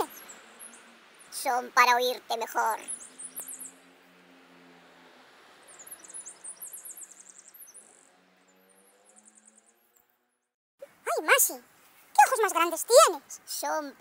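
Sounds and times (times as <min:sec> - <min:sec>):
high-pitched chirping trills: 0:00.0 - 0:03.8, 0:05.7 - 0:08.0.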